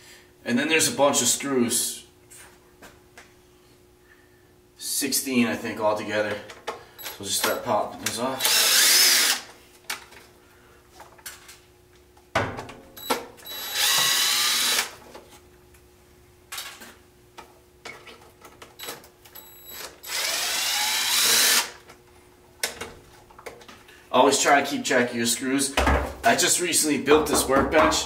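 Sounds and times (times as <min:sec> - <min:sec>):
impact driver running: 0:08.4 - 0:09.5, 0:13.5 - 0:15.0, 0:19.7 - 0:21.8.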